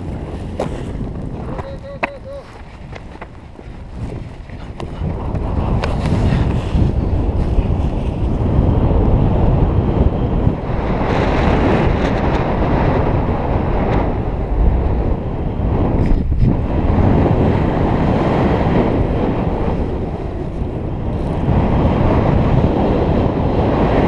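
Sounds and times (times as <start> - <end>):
wind rushing across microphone: 0.0 - 24.0.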